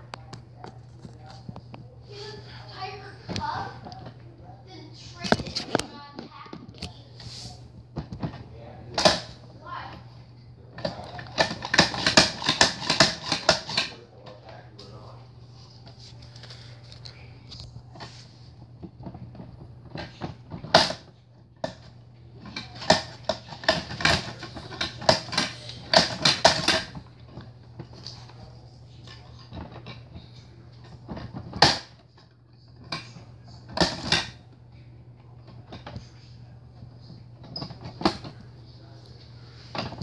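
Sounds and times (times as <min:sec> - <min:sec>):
steady low hum: 0:00.0 - 0:40.0
plastic toy clicking and rattling: 0:10.8 - 0:13.9, 0:19.9 - 0:28.1.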